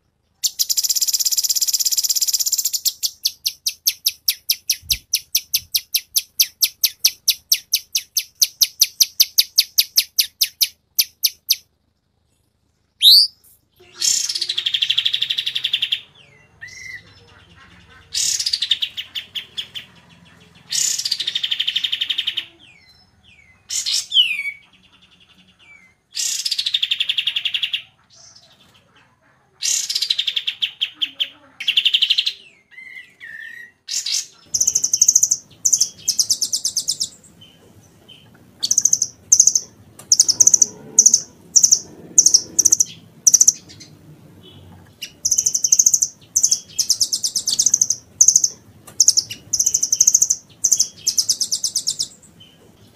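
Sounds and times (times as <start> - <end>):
high-pitched bird chips: 0.4 - 11.6, 13.0 - 15.6, 38.6 - 43.8, 45.0 - 52.2
gliding bird whistles: 13.0 - 13.4
buzzy bird trills: 13.0 - 16.0, 38.6 - 52.1.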